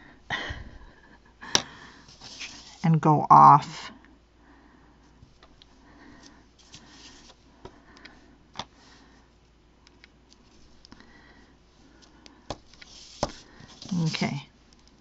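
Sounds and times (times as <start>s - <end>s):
paper rustling: 12.6s - 14.3s.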